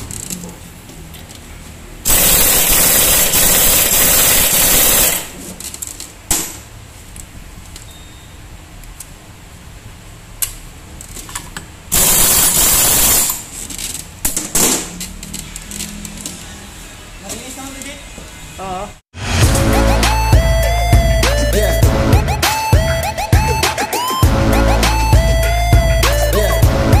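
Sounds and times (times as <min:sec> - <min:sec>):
impact wrench running: 0:02.1 - 0:05.4, 0:11.9 - 0:13.5.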